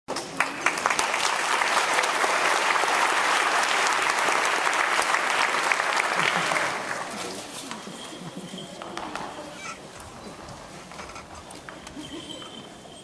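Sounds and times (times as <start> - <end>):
audience applauding: 0.1 - 7.5.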